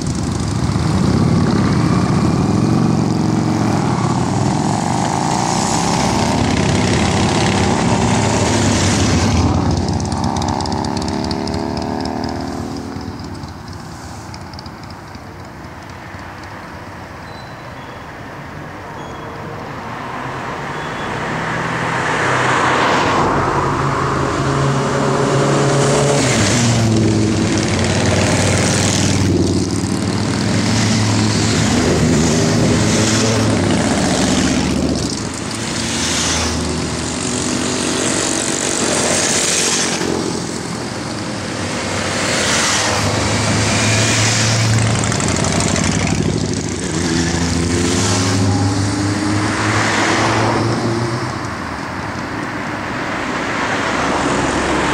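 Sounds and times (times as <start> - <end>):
motorcycles riding past: 0.0 - 16.6, 20.0 - 54.9.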